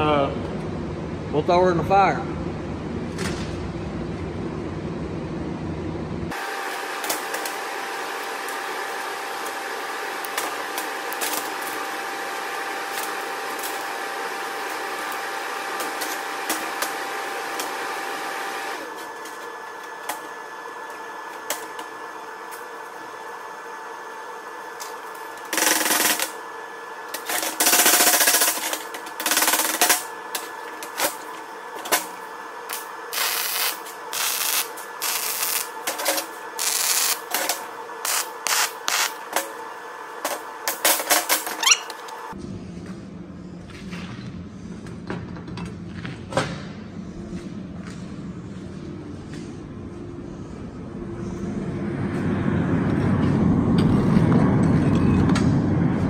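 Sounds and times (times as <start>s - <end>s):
machine hum: 0.0s - 56.0s
welding arc crackling: 6.3s - 23.8s, 24.4s - 26.5s, 27.1s - 42.4s.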